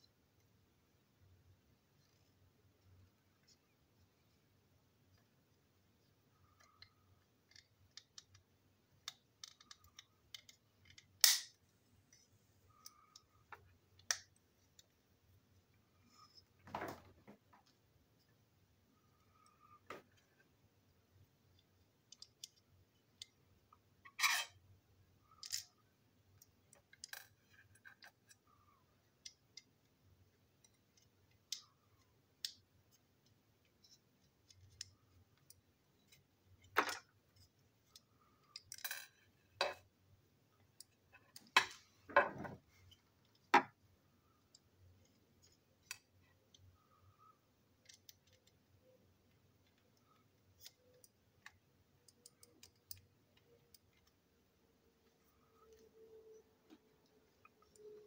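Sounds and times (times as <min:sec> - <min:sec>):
plastic parts clicking and tapping: 0:06.4 - 0:11.6.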